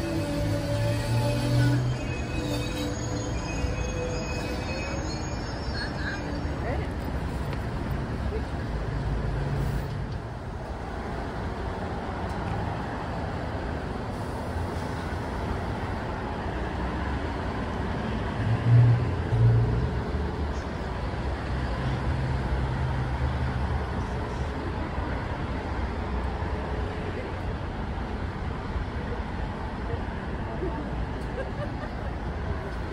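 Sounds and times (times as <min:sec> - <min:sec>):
short low train tones: 0:00.0 - 0:07.4
train rumble and hum: 0:00.0 - 0:32.9.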